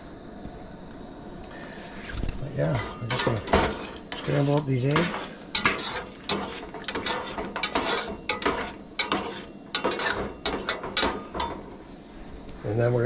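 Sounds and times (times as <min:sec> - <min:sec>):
metal spatula scraping a saucepan: 0:02.7 - 0:11.5.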